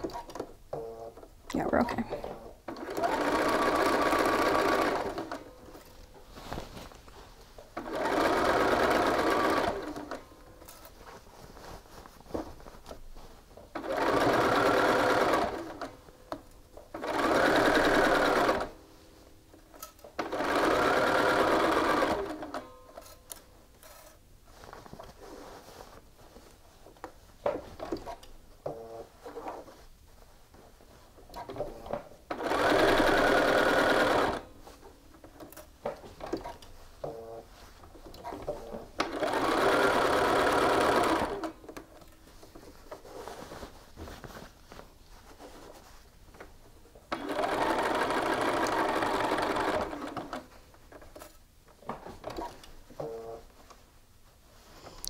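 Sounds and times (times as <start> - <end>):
sewing machine stitching: 2.3 - 5.6, 7.8 - 10.2, 13.7 - 16.0, 17.0 - 18.8, 20.2 - 22.7, 31.4 - 34.5, 38.2 - 41.6, 47.1 - 50.5
fabric rustling: 3.1 - 19.5, 20.3 - 55.0.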